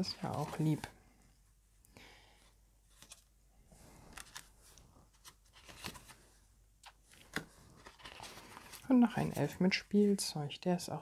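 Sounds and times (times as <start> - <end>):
paper cards rustling: 0.0 - 1.0, 2.9 - 10.1.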